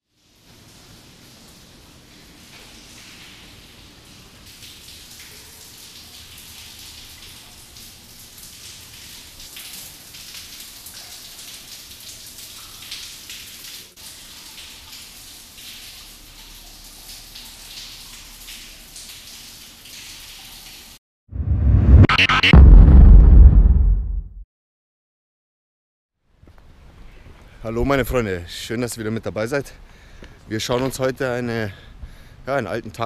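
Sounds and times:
water dripping in a tunnel: 0.0 - 21.0, 28.4 - 33.0.

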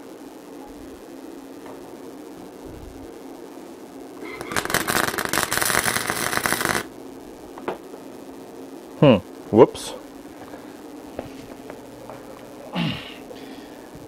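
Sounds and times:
welder arc crackling: 3.9 - 14.0.

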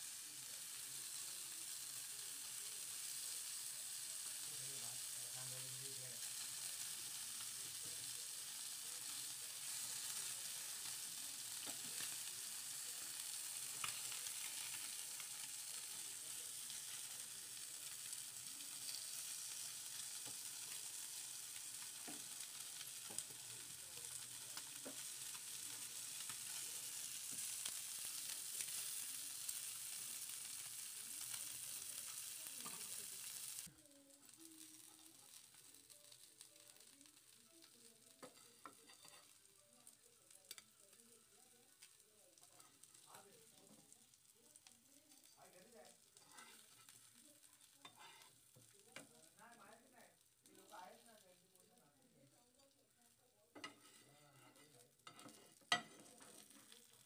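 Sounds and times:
fish sizzling in hot oil: 0.0 - 57.0.

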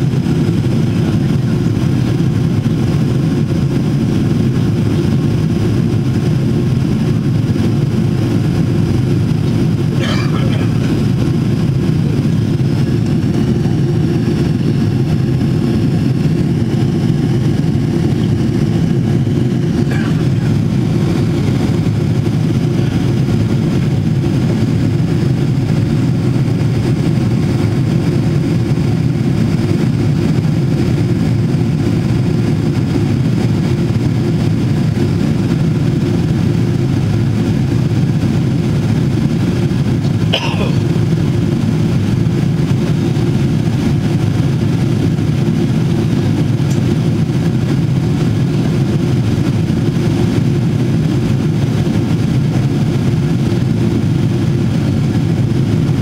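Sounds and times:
airplane cabin drone: 0.0 - 56.0.

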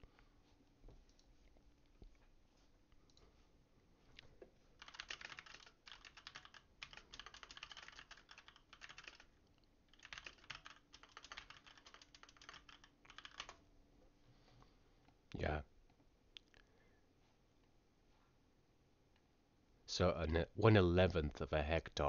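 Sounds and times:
typing on a computer keyboard: 4.8 - 9.3, 9.9 - 13.6.

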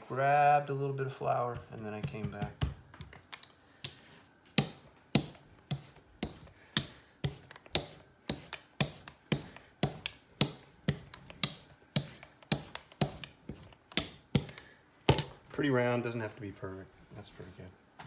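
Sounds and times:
rolling pin knocking on countertop: 1.5 - 3.1, 3.8 - 15.4.

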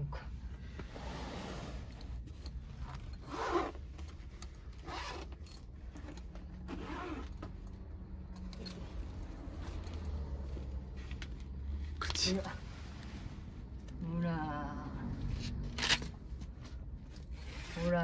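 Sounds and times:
car low hum: 0.0 - 18.0
nylon rustling: 0.4 - 7.7, 15.3 - 18.0
zipper pulls jingling: 1.1 - 12.4, 15.2 - 18.0.

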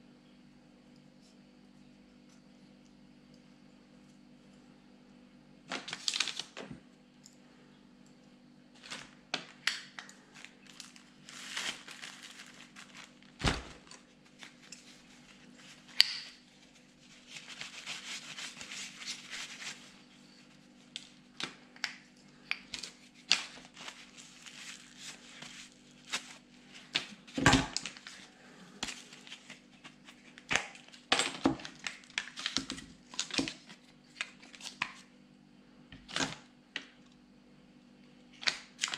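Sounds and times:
faint steady hum: 0.0 - 38.9
paper towel rustling and wiping: 10.3 - 15.9, 16.5 - 21.0, 23.0 - 30.3.

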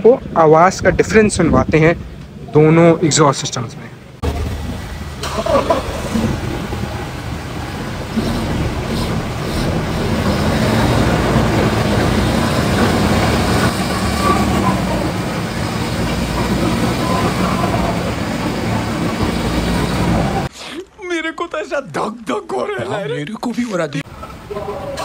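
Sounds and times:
car engine running: 4.2 - 20.5.

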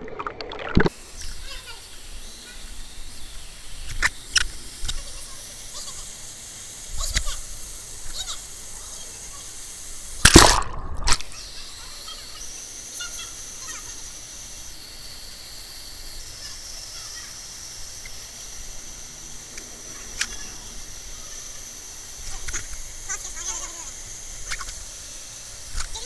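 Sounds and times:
water splash: 0.0 - 0.9, 10.2 - 11.3.

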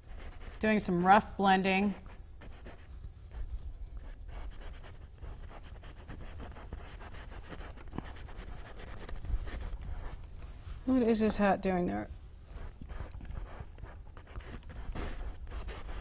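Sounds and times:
paintbrush scratching across canvas: 12.5 - 16.0.

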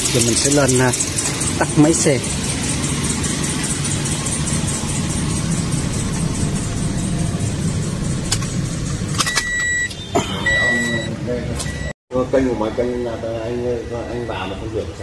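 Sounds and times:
car engine idling: 0.0 - 11.4
car warning chime beeps: 9.2 - 12.0.

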